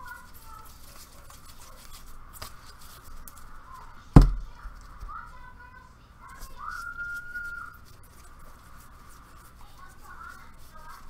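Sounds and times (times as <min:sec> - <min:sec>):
trading cards sliding and rubbing: 0:00.0 - 0:03.6, 0:06.3 - 0:11.0.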